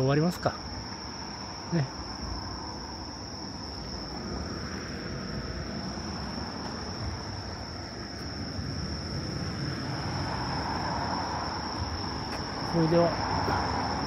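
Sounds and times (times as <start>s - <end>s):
car passing: 0.0s - 14.0s
night insects singing: 0.0s - 14.0s
road traffic rumble: 0.0s - 14.0s.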